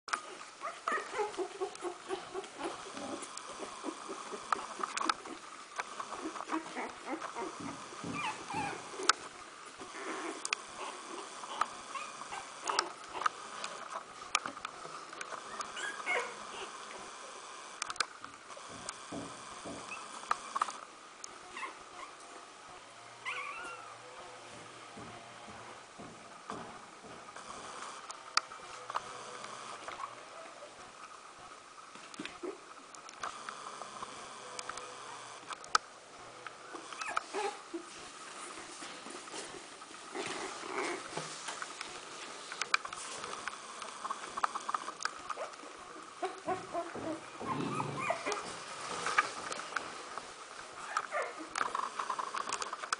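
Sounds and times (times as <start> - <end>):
puppies squeaking and whimpering: 0.3 - 5.4, 6.1 - 9.2, 9.8 - 13.9, 15.3 - 16.8, 19.8 - 20.7, 23.2 - 24.0, 36.8 - 38.0, 46.2 - 49.3
puppy wavering squeal: 8.1 - 8.9, 15.5 - 16.4, 23.2 - 24.1, 36.9 - 37.6, 46.3 - 48.5.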